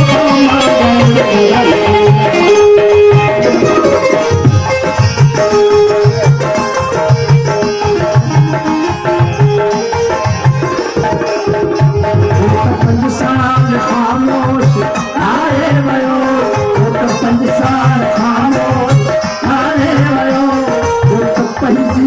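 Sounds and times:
hand drum strokes: 0:00.0 - 0:14.8
harmonium melody: 0:00.0 - 0:22.0.

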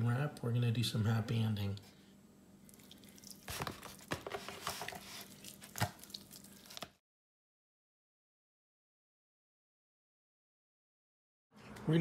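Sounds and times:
hand squishing raw meat: 0:02.6 - 0:04.1, 0:04.8 - 0:07.0.

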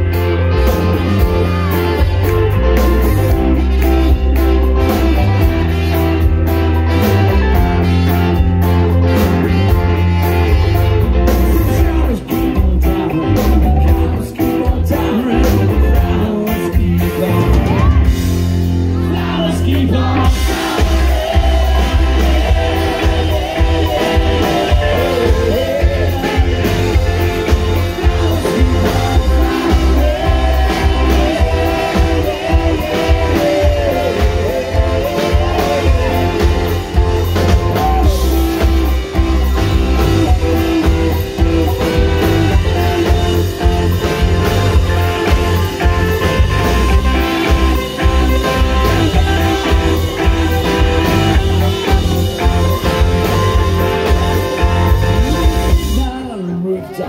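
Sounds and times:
drum kit: 0:00.0 - 0:56.3
bass guitar: 0:00.0 - 0:56.7
electric guitars: 0:00.0 - 0:57.0
person singing: 0:00.1 - 0:18.2, 0:19.0 - 0:57.0.

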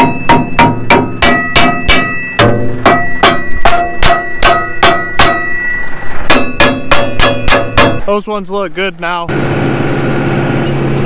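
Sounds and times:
sledgehammer clanging on steel: 0:00.0 - 0:08.2.

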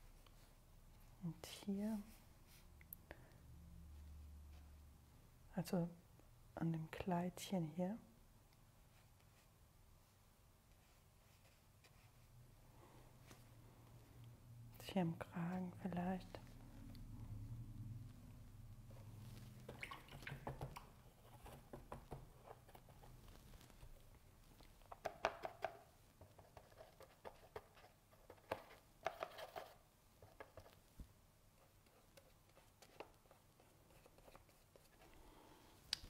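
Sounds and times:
paintbrush tapping plastic palette: 0:24.9 - 0:30.8.

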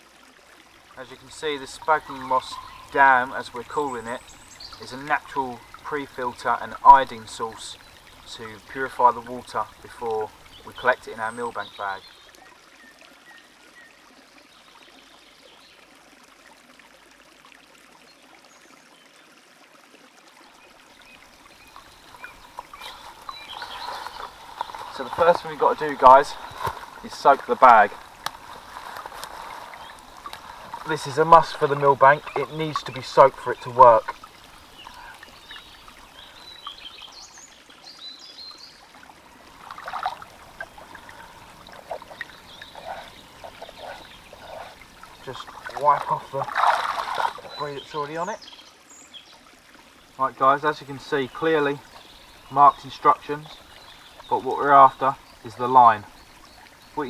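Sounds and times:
stream trickling: 0:00.0 - 0:57.0
faint bird chirp: 0:01.1 - 0:15.9, 0:20.5 - 0:38.9, 0:39.5 - 0:57.0
bag splashing in water: 0:21.8 - 0:31.1, 0:44.0 - 0:47.6.

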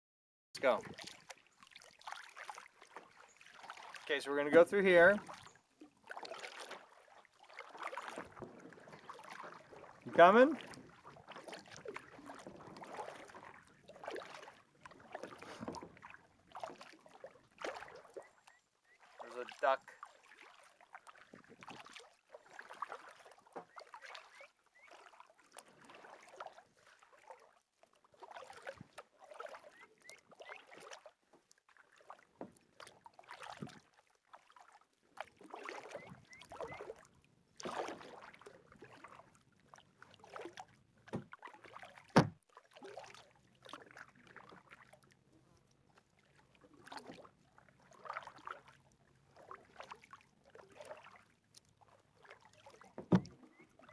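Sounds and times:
paddle splashing in water: 0:00.6 - 0:53.9.

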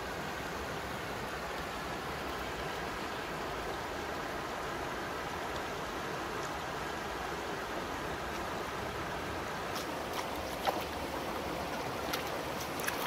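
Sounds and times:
river running over rocks: 0:00.0 - 0:13.0
feet splashing in water: 0:09.6 - 0:13.0.

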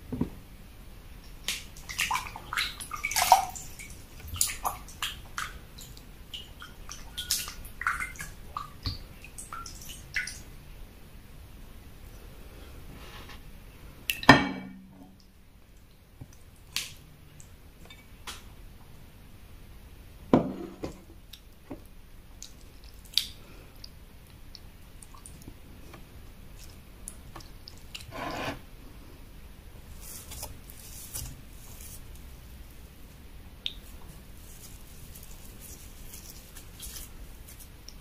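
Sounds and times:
wet squishes of food by hand: 0:01.3 - 0:10.4, 0:21.2 - 0:28.1, 0:29.9 - 0:38.0
short scrape: 0:28.1 - 0:28.6.

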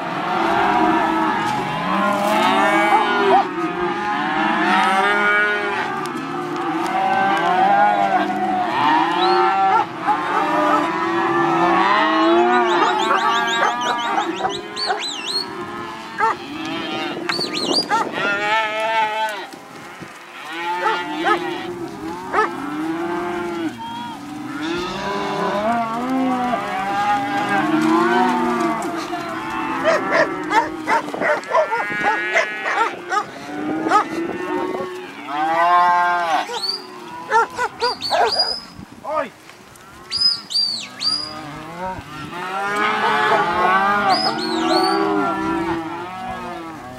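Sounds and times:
calves bawling: 0:11.6 - 0:38.8, 0:39.8 - 0:46.9.

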